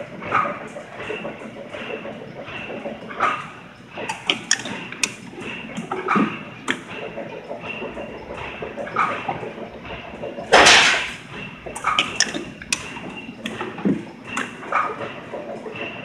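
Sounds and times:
spring-forming machine clicking: 0:00.0 - 0:16.0.

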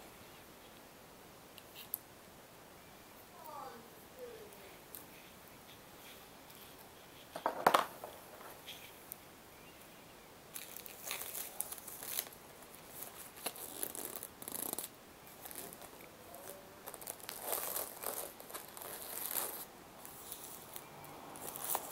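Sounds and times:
plastic and paper crinkling: 0:10.5 - 0:21.9.

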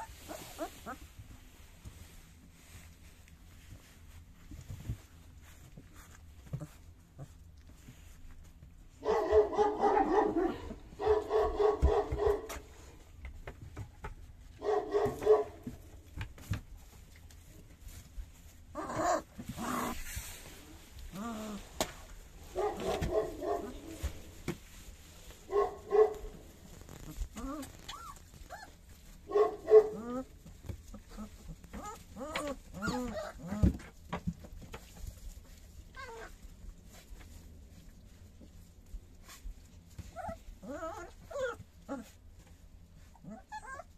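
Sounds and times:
puppies whimpering and yelping: 0:00.0 - 0:01.1, 0:18.8 - 0:20.0, 0:26.9 - 0:29.1, 0:30.9 - 0:33.6, 0:35.9 - 0:36.4, 0:39.9 - 0:42.2, 0:43.0 - 0:43.9
rustling in straw: 0:00.0 - 0:08.4, 0:16.8 - 0:33.4
puppies whimpering: 0:27.4 - 0:28.8, 0:43.1 - 0:43.9.

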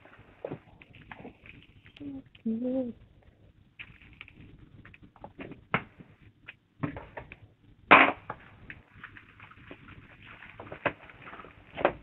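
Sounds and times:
plastic wrap crinkling: 0:03.8 - 0:05.3.

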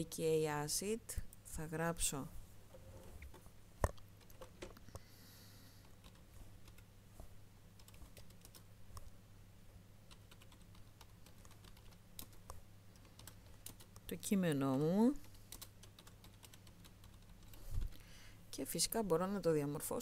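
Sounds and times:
faint steady hum: 0:00.0 - 0:20.0
keyboard typing clicks: 0:07.8 - 0:08.6, 0:10.1 - 0:14.1, 0:15.5 - 0:17.6.

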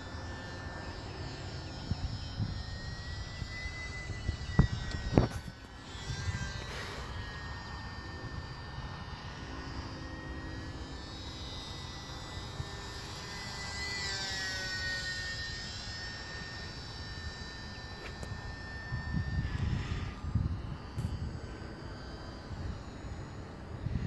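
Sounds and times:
rc plane motor whining: 0:00.0 - 0:24.0.

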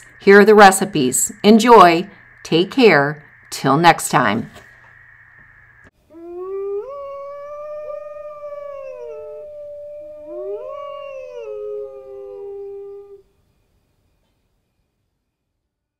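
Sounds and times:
dog howling: 0:06.2 - 0:13.2
lower dog howl: 0:06.2 - 0:13.2.

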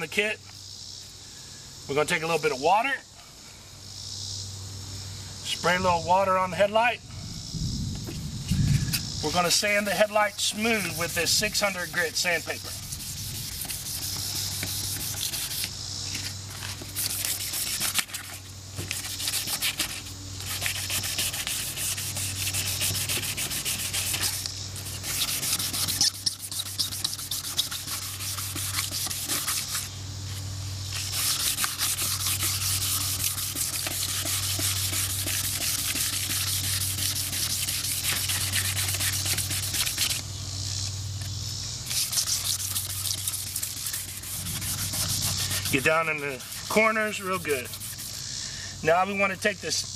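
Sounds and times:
sandpaper rubbing on plastic: 0:08.9 - 0:29.9, 0:30.9 - 0:40.2, 0:41.9 - 0:48.3.

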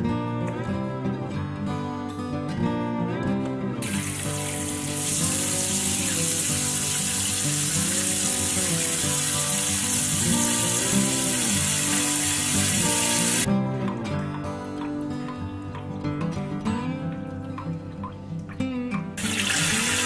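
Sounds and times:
tap water running into metal bowl: 0:03.8 - 0:13.5, 0:14.8 - 0:20.0.

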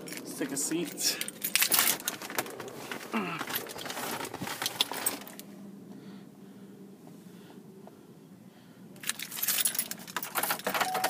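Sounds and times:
handling rustle: 0:00.0 - 0:05.5
keys jangling: 0:01.1 - 0:02.6, 0:09.0 - 0:11.0.

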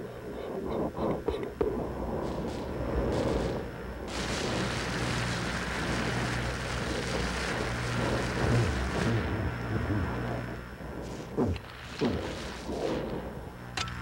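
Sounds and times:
low rumble: 0:00.0 - 0:14.0
spraying water hissing: 0:02.1 - 0:13.6.

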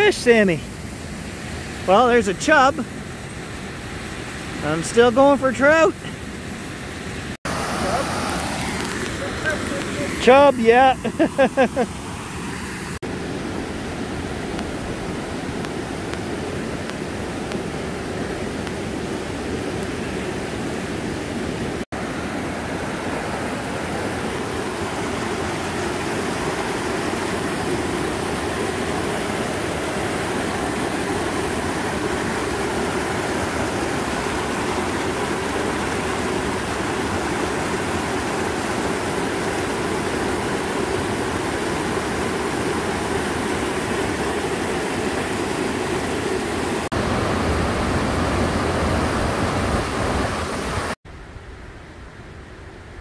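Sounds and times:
waterfall rushing over rocks: 0:00.0 - 0:03.0, 0:04.0 - 0:06.4, 0:07.2 - 0:51.0.

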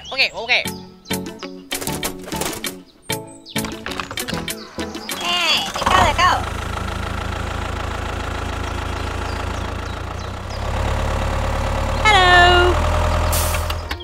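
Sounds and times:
tractor diesel engine chugging: 0:04.6 - 0:14.0.

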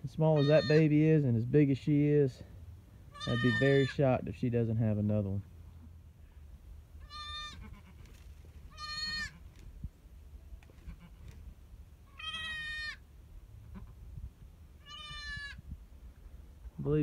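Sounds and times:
goat kid bleating: 0:00.3 - 0:00.9, 0:03.1 - 0:04.0, 0:07.0 - 0:09.6, 0:10.8 - 0:11.4, 0:12.0 - 0:13.0, 0:13.6 - 0:14.0, 0:14.8 - 0:15.7.

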